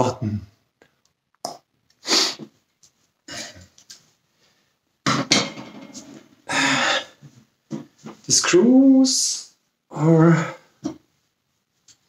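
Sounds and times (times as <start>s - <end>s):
man coughing: 3.3s - 3.7s.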